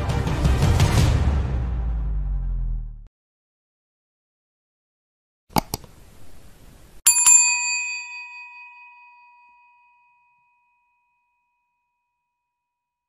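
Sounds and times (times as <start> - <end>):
sharp clicks: 5.5 - 6.0
bright bell strike ringing: 7.1 - 12.2.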